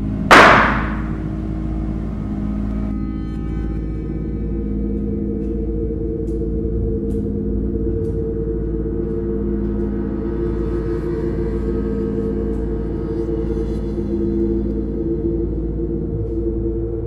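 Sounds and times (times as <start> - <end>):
ambient gong-like drone: 0.0 - 17.0.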